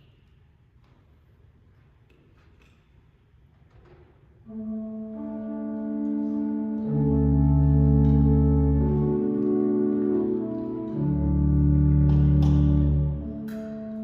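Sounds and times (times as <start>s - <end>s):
organ playing sustained chords: 4.5s - 14.0s.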